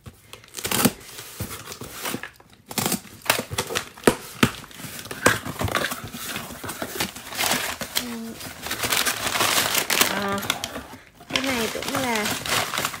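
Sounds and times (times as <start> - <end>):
cardboard box tearing open: 0.5 - 13.0.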